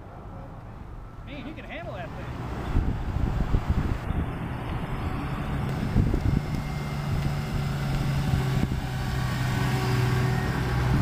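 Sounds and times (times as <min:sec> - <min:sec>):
car engine rolling past: 0:02.2 - 0:11.0.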